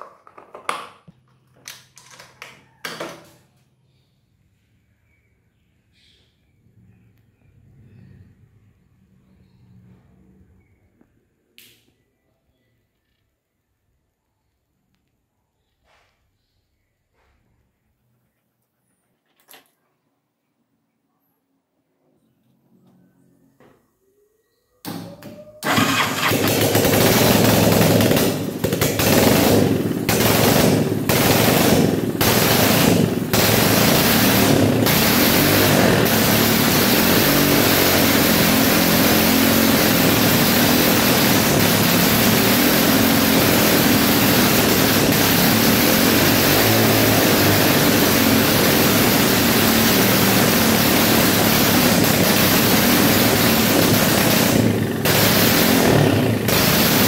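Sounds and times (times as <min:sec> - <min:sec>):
single-cylinder engine running: 0:25.2 - 0:57.0.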